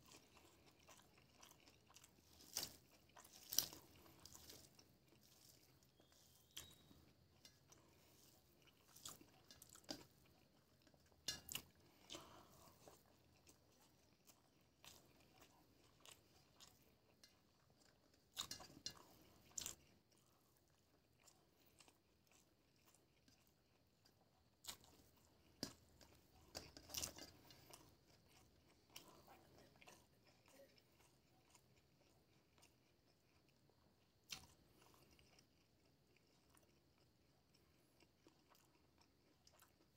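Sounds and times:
fingers mixing rice on plate: 0.0s - 19.9s, 21.8s - 32.7s
chewing: 0.0s - 39.9s.

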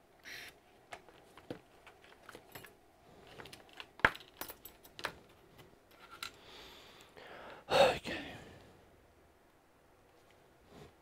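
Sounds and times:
hand tools clicking and clinking: 1.0s - 6.4s.

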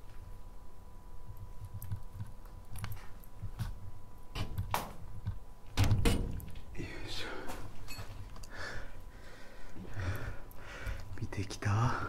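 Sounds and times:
sharp knocks and clatters: 4.4s - 6.7s.

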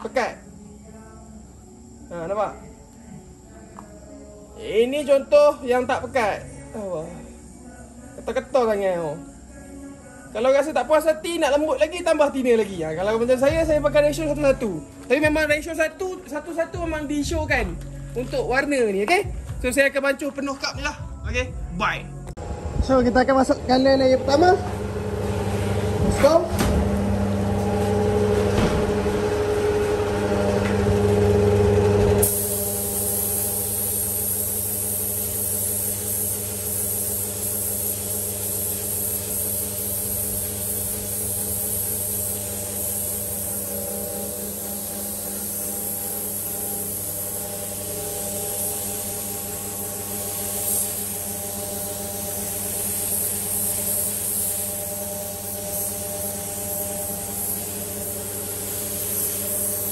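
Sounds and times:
motor hum: 22.4s - 33.6s
spray gun hissing: 32.2s - 59.9s.

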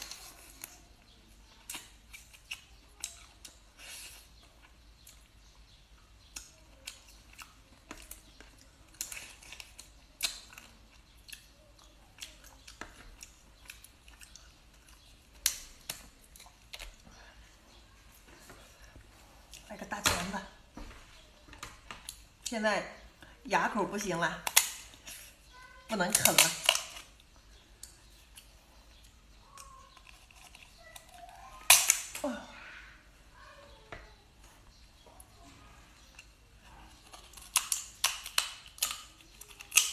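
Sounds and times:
shell cracking: 24.4s - 25.0s, 26.0s - 28.0s, 29.5s - 32.2s, 37.0s - 39.9s.

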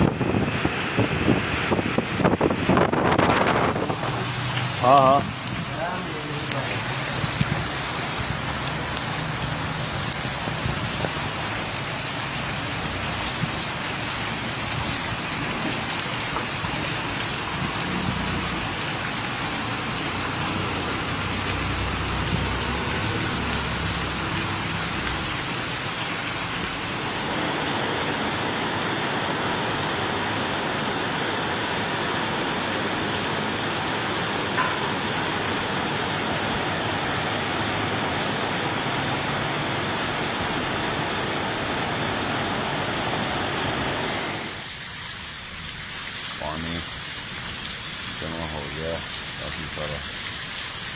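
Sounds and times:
heavy rain pouring: 0.0s - 50.9s.

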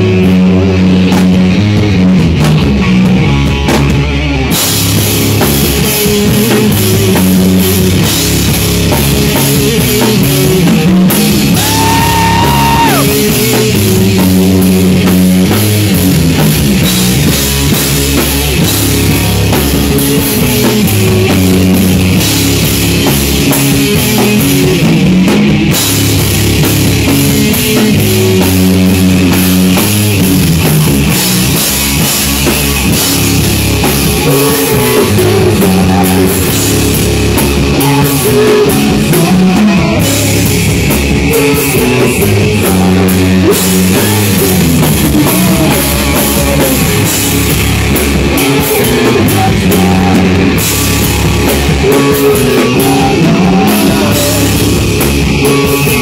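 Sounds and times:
live rock band playing: 0.0s - 56.0s.

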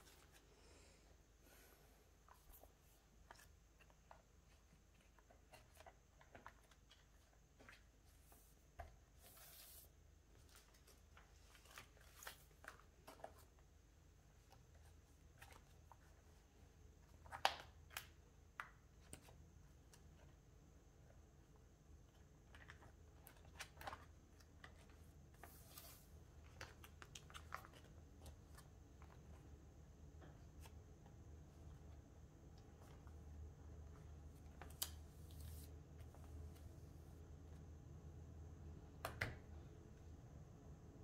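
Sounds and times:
plastic sleeves clicking and rustling: 2.3s - 8.0s, 22.1s - 25.5s, 26.3s - 29.5s.

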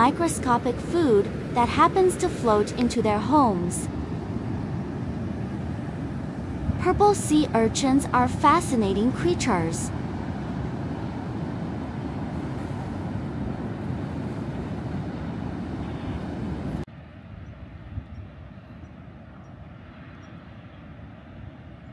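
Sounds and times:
ocean surf: 0.0s - 17.3s
wind: 0.0s - 21.9s.

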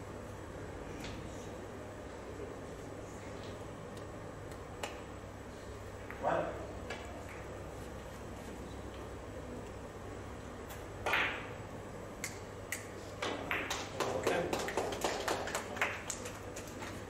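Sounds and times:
billiard balls clicking and knocking: 13.2s - 15.3s.

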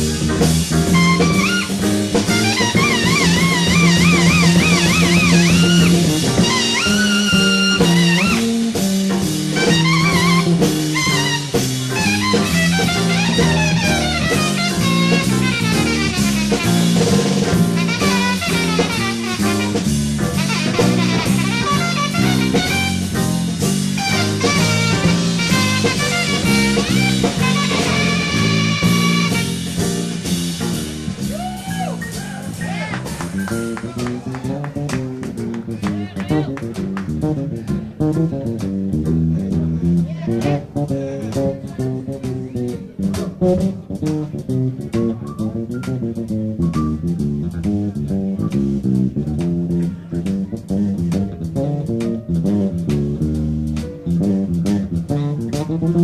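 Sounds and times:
brass and saxophone section: 0.0s - 38.5s
bass: 0.0s - 56.0s
big band jazz: 0.0s - 56.0s
drum kit: 0.0s - 56.0s.

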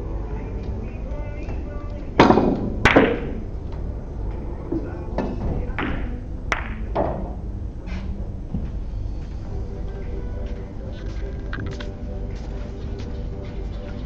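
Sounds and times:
billiard balls clicking: 1.4s - 7.6s, 10.4s - 12.0s
balls knocking off cushions: 1.5s - 3.9s, 4.7s - 7.4s.

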